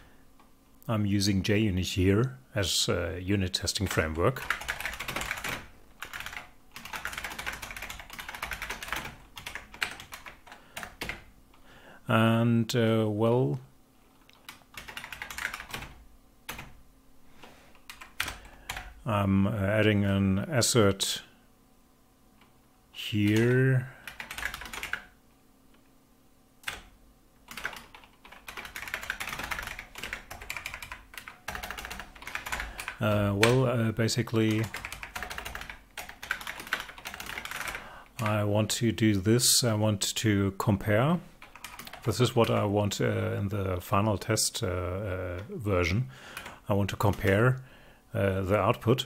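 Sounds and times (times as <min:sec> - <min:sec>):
fast keyboard typing: 0:03.9 - 0:11.3, 0:14.4 - 0:16.8, 0:17.9 - 0:18.9, 0:23.2 - 0:25.1, 0:26.6 - 0:26.9, 0:27.5 - 0:33.6, 0:34.5 - 0:38.3, 0:41.4 - 0:42.6.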